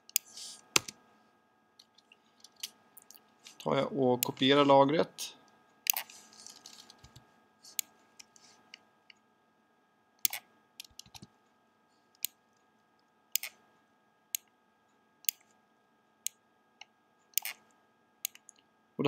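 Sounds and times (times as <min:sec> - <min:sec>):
faint steady hum: 0:00.0 - 0:19.0
computer mouse and keyboard clicks: 0:00.1 - 0:01.0, 0:10.2 - 0:11.3, 0:13.4 - 0:13.6, 0:17.4 - 0:17.7.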